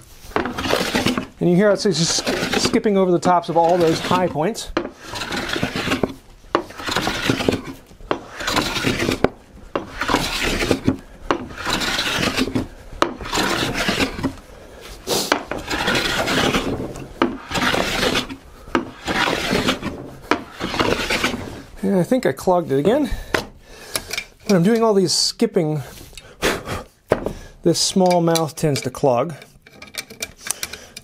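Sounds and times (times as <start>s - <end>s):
hand plane rasping on wood: 0.3s - 21.7s.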